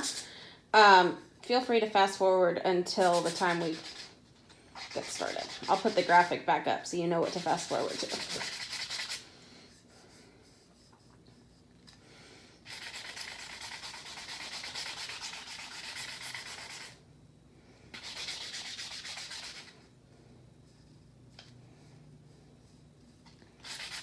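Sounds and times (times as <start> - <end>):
scratchy sanding: 3.0 - 4.2, 4.8 - 6.3, 7.2 - 9.2, 12.7 - 17.0, 18.0 - 19.7, 23.6 - 24.0.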